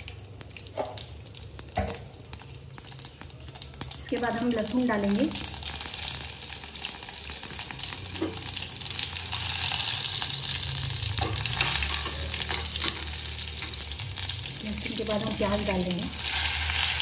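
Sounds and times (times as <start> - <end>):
garlic sizzling in hot oil: 0.0 - 17.0.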